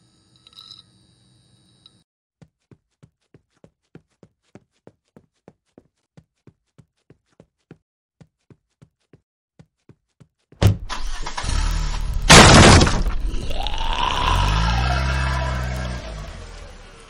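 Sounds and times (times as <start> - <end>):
glass doors smashing: 11.9 - 13.4.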